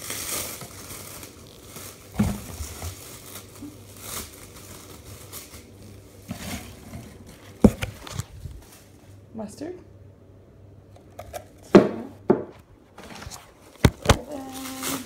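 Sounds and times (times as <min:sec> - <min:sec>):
packaging rustling and crinkling: 0:00.0 - 0:09.0, 0:12.9 - 0:15.0.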